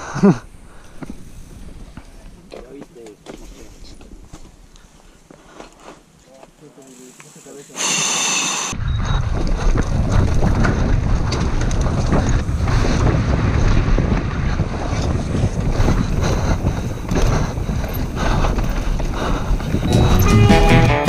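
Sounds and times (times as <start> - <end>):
bike tyres rumbling: 0.0 - 6.6, 8.8 - 21.0
wind buffeting microphone: 8.8 - 20.4
bike rattling over rocks: 9.3 - 19.9.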